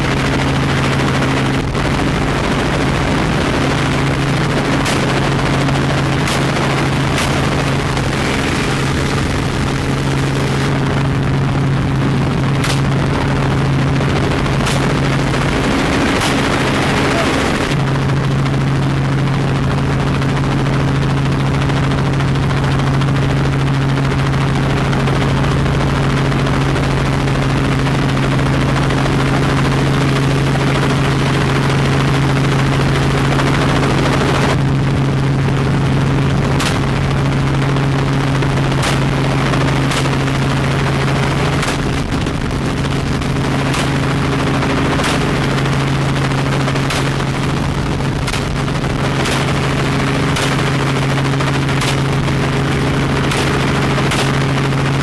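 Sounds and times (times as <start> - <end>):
helicopter rotor and engine drone: 0.0 - 55.0
rifle shots: 4.7 - 9.0, 12.6 - 13.1, 14.5 - 17.7, 46.7 - 47.5, 53.2 - 54.5.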